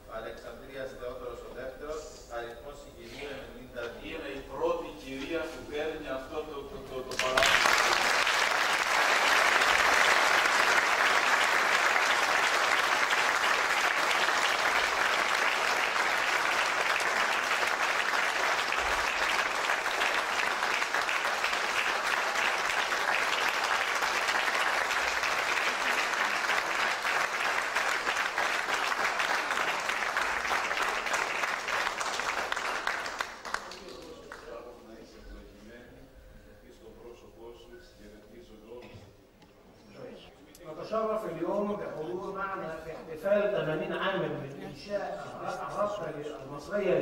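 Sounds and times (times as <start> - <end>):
audience applauding: 7.1 - 34.5.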